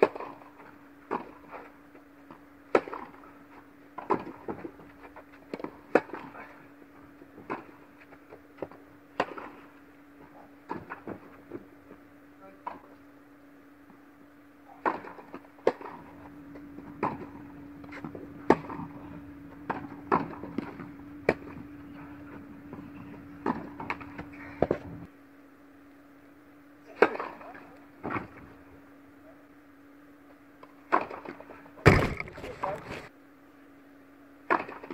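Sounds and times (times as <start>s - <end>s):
steady hum: 0.1s - 34.5s
tennis ball bouncing: 16.6s - 21.8s.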